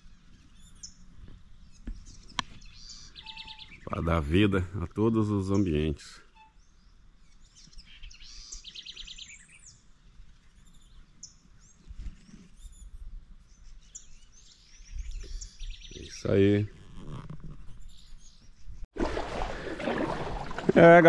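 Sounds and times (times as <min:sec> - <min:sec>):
birds chirping and singing: 0:00.0 - 0:04.5, 0:05.1 - 0:16.8, 0:17.7 - 0:18.8
bird trill: 0:02.1 - 0:03.9, 0:06.3 - 0:06.9.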